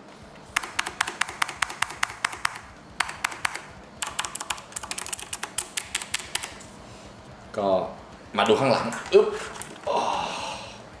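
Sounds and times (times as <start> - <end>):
mechanical keyboard typing: 0.5 - 6.6.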